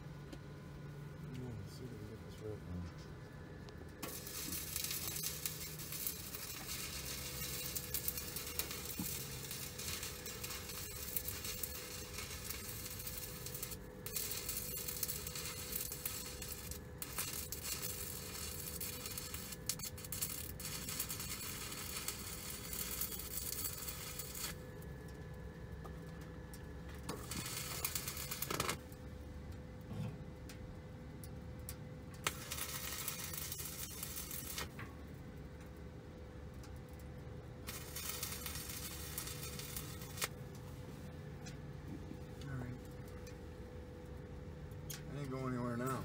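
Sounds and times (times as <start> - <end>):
stick welding arc: 4.0 - 24.6, 27.0 - 29.0, 32.2 - 34.8, 37.6 - 40.4, 44.8 - 46.0.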